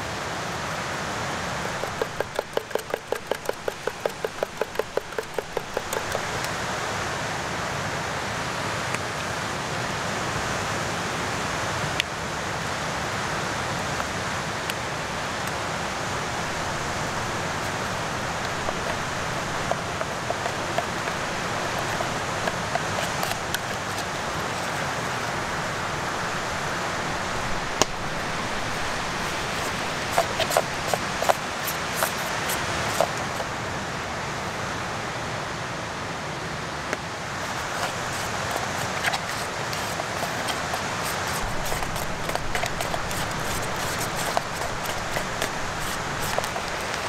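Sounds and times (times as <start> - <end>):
metal spoon scraping a pot: 1.7 - 6.5, 17.1 - 25.0, 28.7 - 33.5, 37.4 - 47.0
plastic packaging crinkling: 16.6 - 25.2, 28.1 - 33.5, 37.4 - 47.0.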